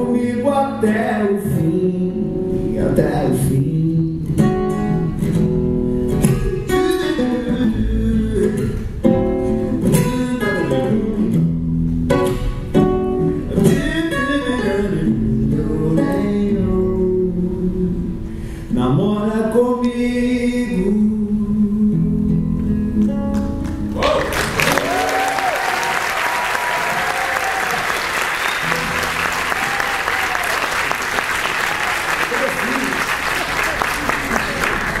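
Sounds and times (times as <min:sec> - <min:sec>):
man singing: 0:00.0 - 0:05.2, 0:06.3 - 0:11.6, 0:13.4 - 0:23.4
acoustic guitar plucked: 0:00.0 - 0:24.0, 0:28.5 - 0:29.4.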